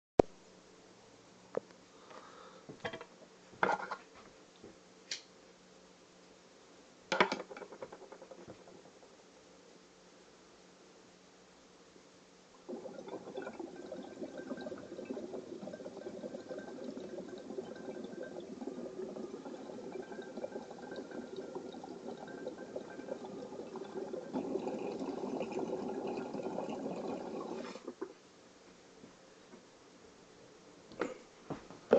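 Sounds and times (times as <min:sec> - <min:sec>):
water bubbling in bong: 0:12.6 - 0:28.1.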